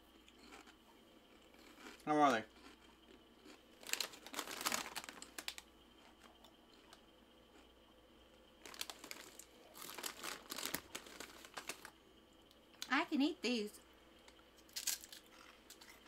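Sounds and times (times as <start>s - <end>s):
plastic packaging crinkling: 3.8s - 5.6s, 8.6s - 11.9s.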